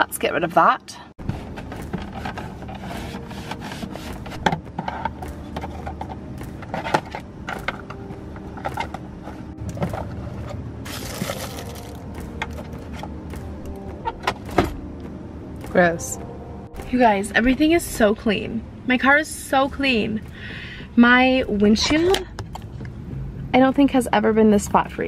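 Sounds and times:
items scraping and knocking on plastic: 1.2 - 13.5.

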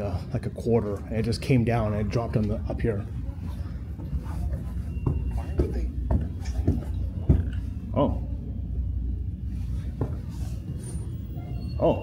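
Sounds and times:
footsteps on carpeted stairs: 4.0 - 7.8, 9.9 - 10.8.

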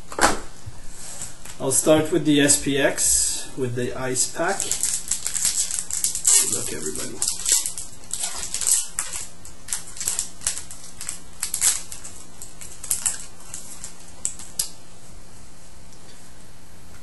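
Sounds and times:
faint steady hum: 0.0 - 17.0
foil wrapper crinkling: 4.2 - 14.8.

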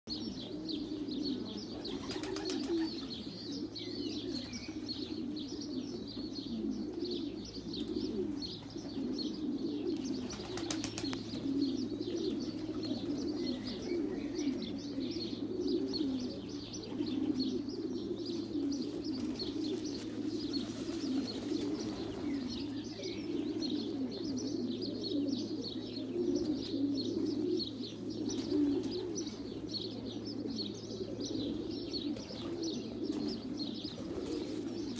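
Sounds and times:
pigeons cooing: 0.1 - 34.9
small birds chirping: 0.1 - 34.9.

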